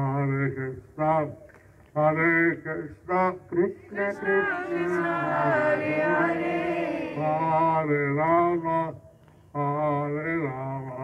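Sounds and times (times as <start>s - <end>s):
man chanting a prayer: 2.0s - 6.1s, 7.1s - 11.0s.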